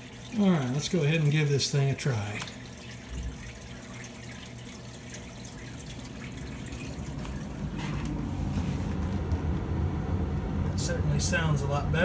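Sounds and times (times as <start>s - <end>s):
furnace blower rumbling: 5.8s - 12.0s
air moving through ductwork: 6.0s - 12.0s.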